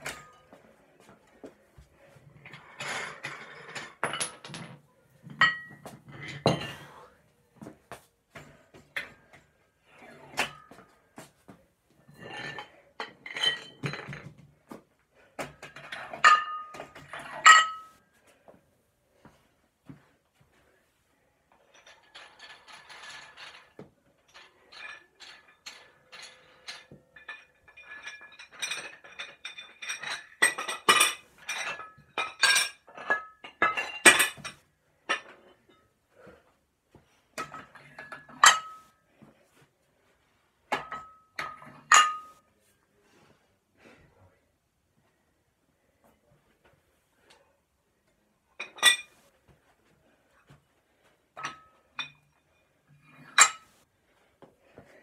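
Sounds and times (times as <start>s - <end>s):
metal or glass objects clinking: 15.8s - 18.0s, 37.4s - 38.9s, 40.8s - 42.4s, 51.4s - 53.8s.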